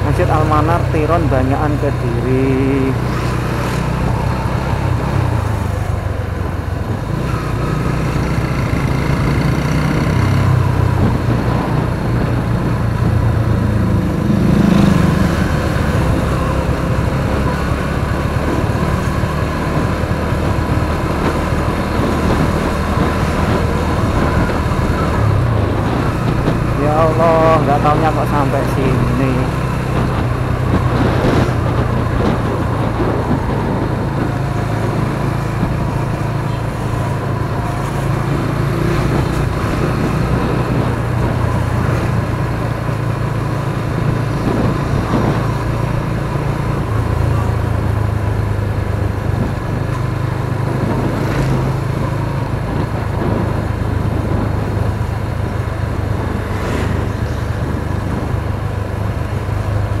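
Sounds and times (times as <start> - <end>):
motorcycle engine running: 0.0 - 60.0
wind and road noise: 0.0 - 60.0.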